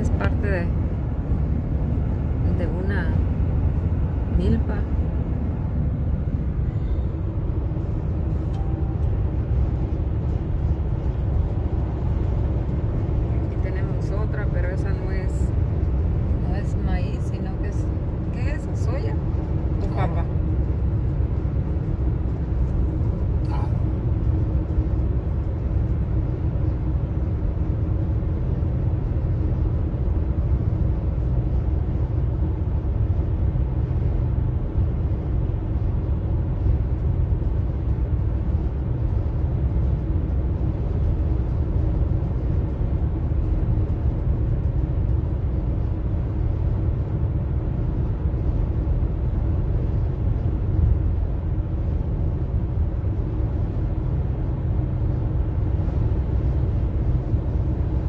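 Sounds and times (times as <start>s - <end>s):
car road noise rumble: 0.0s - 58.0s.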